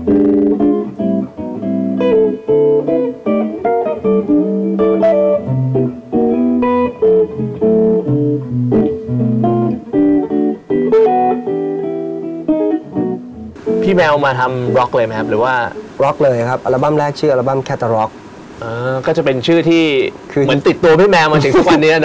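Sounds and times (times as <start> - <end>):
solo electric guitar: 0.0 - 22.0.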